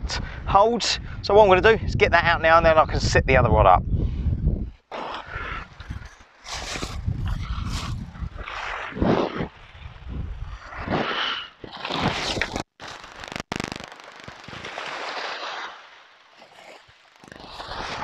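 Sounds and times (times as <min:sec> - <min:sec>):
wind buffeting microphone: 0:00.0 - 0:11.1.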